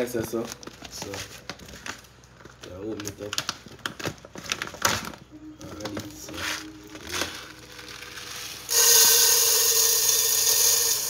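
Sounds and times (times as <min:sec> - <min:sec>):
handling sounds: 0:00.0 - 0:08.7
rice pouring into metal pot: 0:07.8 - 0:11.0.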